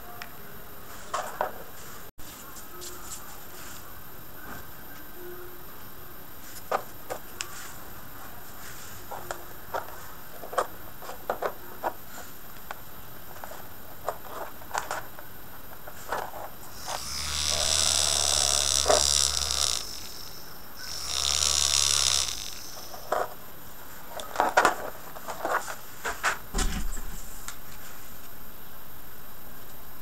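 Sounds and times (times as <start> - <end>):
small motor whining: 16.7 - 23.2.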